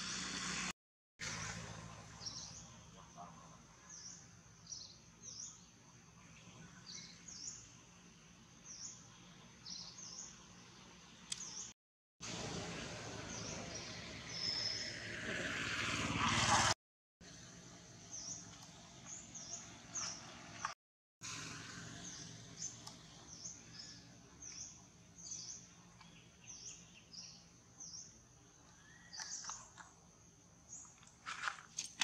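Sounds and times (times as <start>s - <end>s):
small bird chirping: 13.3s - 14.9s, 21.9s - 31.2s.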